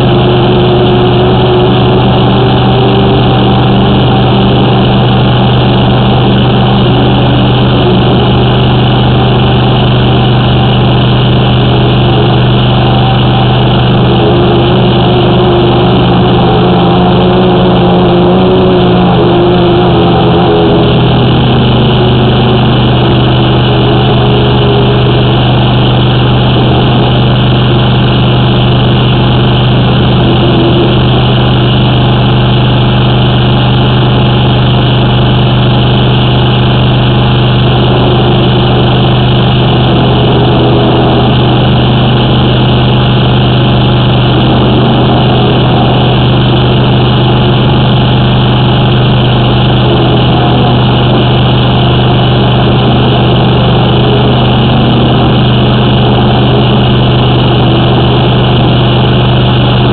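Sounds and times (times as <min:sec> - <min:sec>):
drain jetter engine and pump humming: 0:00.0 - 0:59.9.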